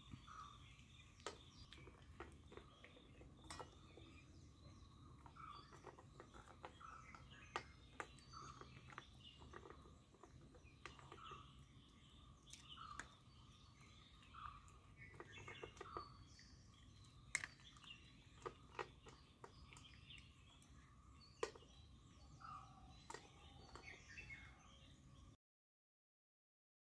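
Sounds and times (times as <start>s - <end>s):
birds chirping faintly: 0.0s - 25.4s
puppy chewing from metal bowl: 0.1s - 11.7s, 13.8s - 21.8s.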